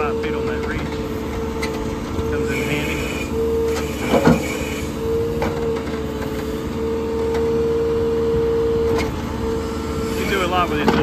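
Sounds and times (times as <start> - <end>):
hydraulic whine: 0.0 - 11.0
tractor engine under load: 0.0 - 11.0.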